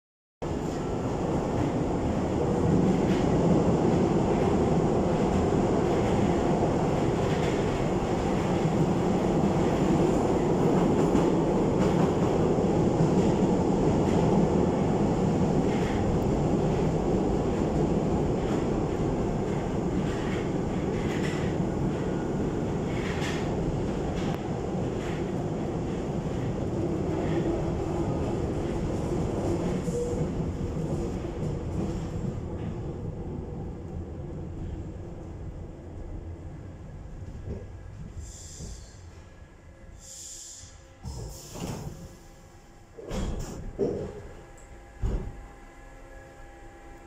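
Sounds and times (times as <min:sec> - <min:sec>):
train wheels rumbling on rails: 0:00.4 - 0:47.0.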